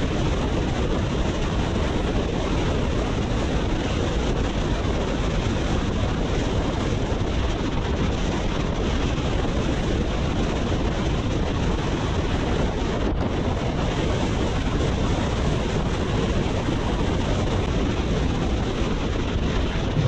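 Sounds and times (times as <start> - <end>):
wind rushing over microphone: 0.0 - 20.0
road noise: 17.8 - 20.0
motorcycle engine: 19.8 - 20.0.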